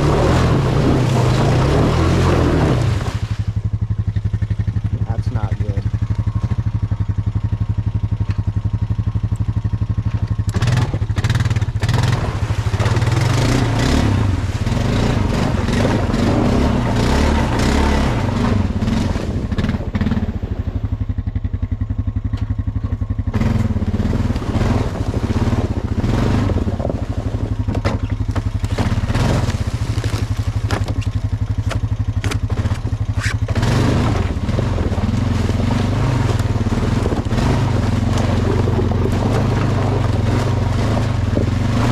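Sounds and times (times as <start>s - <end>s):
tyres crunching leaves and sticks: 0.0s - 11.1s, 21.9s - 41.9s
atv engine running: 0.0s - 41.9s.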